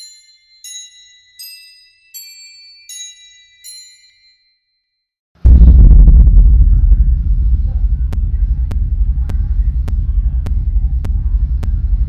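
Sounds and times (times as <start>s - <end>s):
tinkling bell-like melody: 0.0s - 5.0s
loud low rumble: 5.4s - 12.0s.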